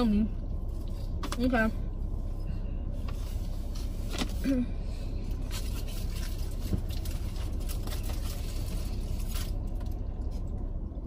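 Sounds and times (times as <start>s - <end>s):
low rumble inside car: 0.0s - 11.0s.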